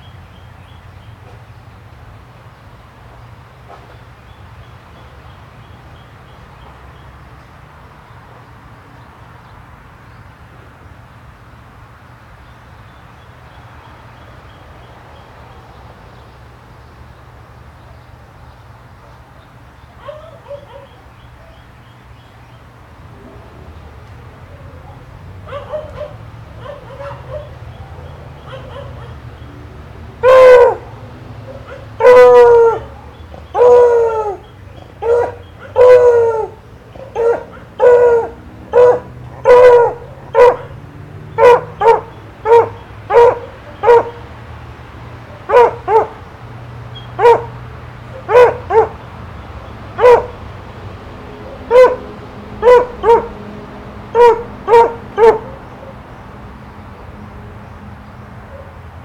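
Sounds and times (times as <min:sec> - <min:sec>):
dog barking and howling: 0:20.0 - 0:21.5, 0:24.5 - 0:29.3, 0:30.2 - 0:44.3, 0:45.4 - 0:46.2, 0:47.0 - 0:49.0, 0:50.0 - 0:50.5, 0:51.3 - 0:53.4, 0:54.1 - 0:56.0.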